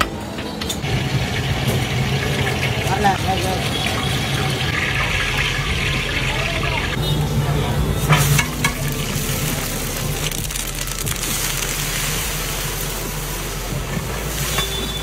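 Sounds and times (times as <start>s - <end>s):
hot oil sizzling: 0.8s - 7.0s, 8.0s - 15.0s.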